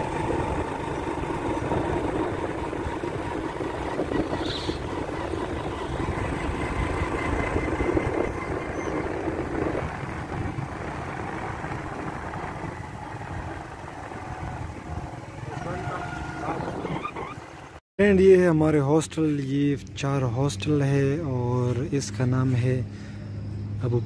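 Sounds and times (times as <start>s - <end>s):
steady low rumble: 0.0s - 15.4s
motorcycle engine running: 0.0s - 17.8s.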